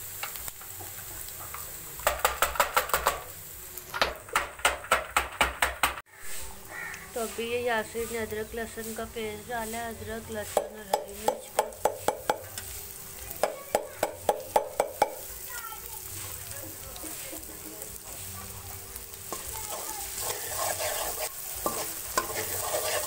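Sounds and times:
onions frying in oil: 0.0 - 23.0
ladle stirring in metal pan: 6.1 - 23.0.

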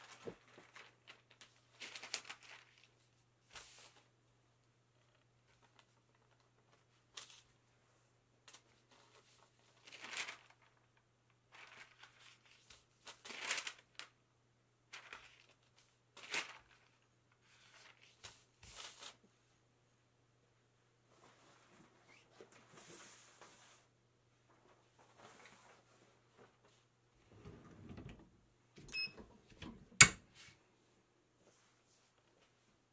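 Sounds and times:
paper swishing and rustling: 15.0 - 19.2.

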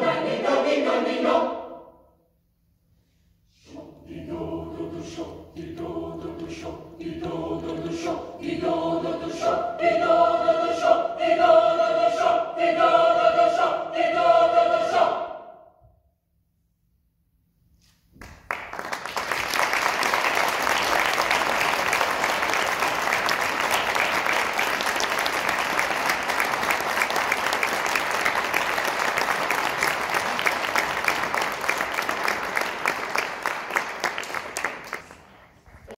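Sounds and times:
audience applause: 18.2 - 35.9.

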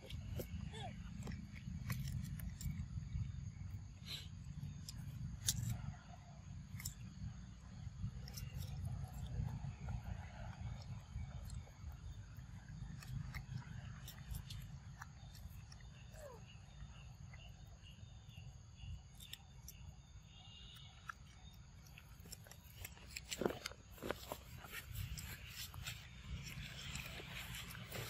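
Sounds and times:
monkeys chewing cucumber: 0.0 - 5.8, 6.6 - 20.1, 20.9 - 28.0
low outdoor rumble: 0.0 - 18.9, 21.8 - 28.0.

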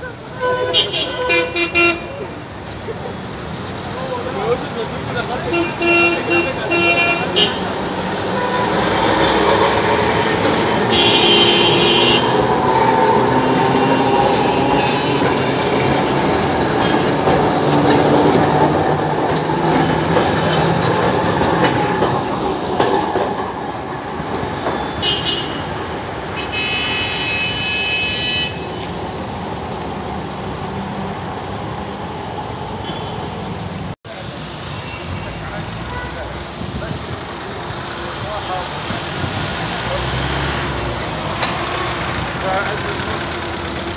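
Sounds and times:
tram wheels rumbling on rails: 0.0 - 26.4, 35.4 - 43.9.

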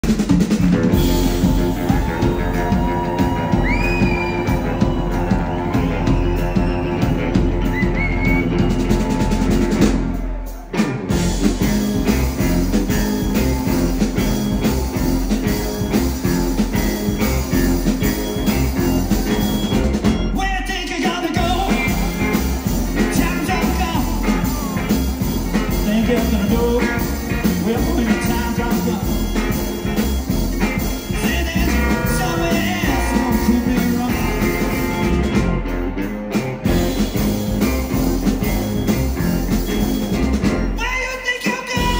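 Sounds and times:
live band playing: 0.0 - 41.9
man singing: 20.3 - 22.4, 23.0 - 30.0, 30.7 - 35.4, 40.8 - 41.9.

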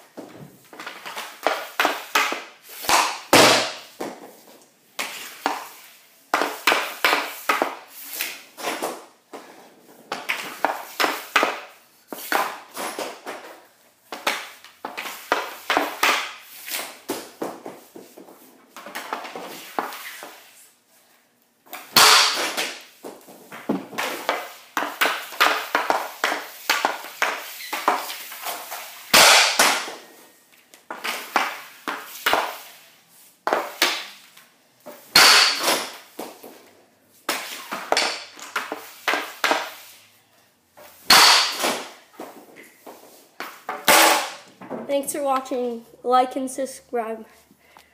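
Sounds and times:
hockey stick tapping pucks: 0.2 - 20.5, 21.7 - 32.8, 33.4 - 36.6, 37.2 - 39.9, 40.8 - 45.5
pucks being shot: 0.7 - 4.3, 5.0 - 9.1, 10.1 - 20.5, 21.7 - 30.2, 30.8 - 32.8, 33.4 - 34.2, 34.9 - 36.6, 37.2 - 39.9, 41.0 - 42.5, 43.4 - 44.5.

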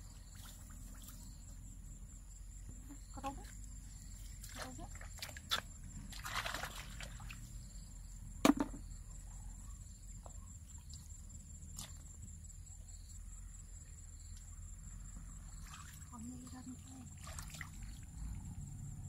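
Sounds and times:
outdoor background: 0.0 - 19.0
hands splashing in muddy water: 4.4 - 7.4, 17.2 - 18.0
sharp knock: 8.4 - 8.8.

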